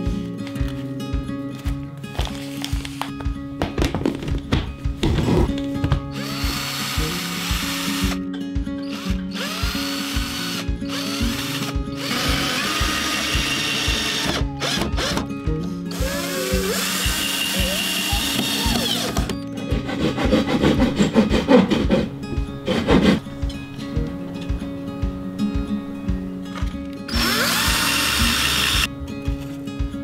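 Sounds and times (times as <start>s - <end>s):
background music with beat: 0.0s - 30.0s
cordless drill driving screws: 6.1s - 8.2s, 8.8s - 15.3s, 15.9s - 19.4s, 27.1s - 28.9s.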